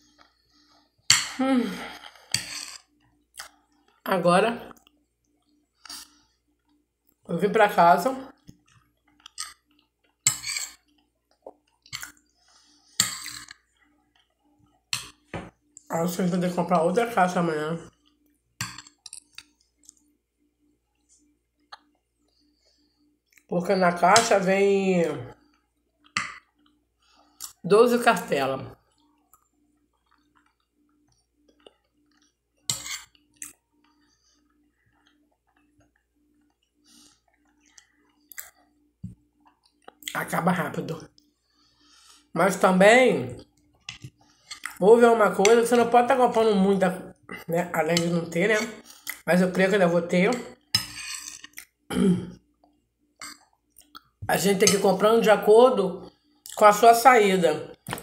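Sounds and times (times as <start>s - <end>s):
metal spoon scraping glass plate: 10.3s - 10.8s, 32.7s - 33.2s, 50.3s - 51.6s.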